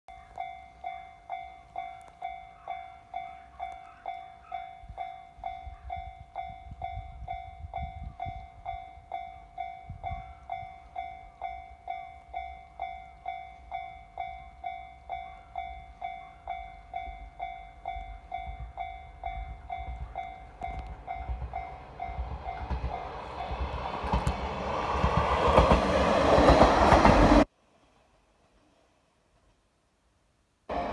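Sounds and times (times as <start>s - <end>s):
level crossing bell ringing: 0.1s - 23.6s
diesel train passing: 0.4s - 27.5s.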